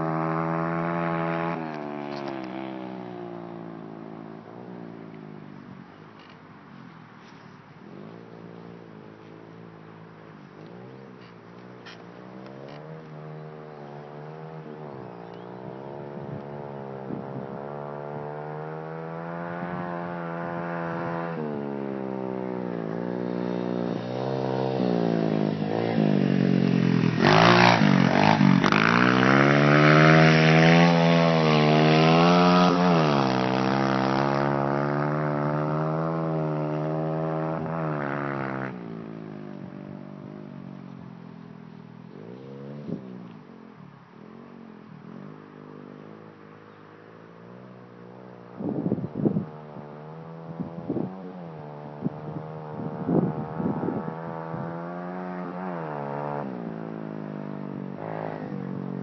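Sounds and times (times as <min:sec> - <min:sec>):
dirt bike engine revving: 0:00.0 - 0:04.4, 0:10.6 - 0:40.6, 0:48.6 - 0:59.0.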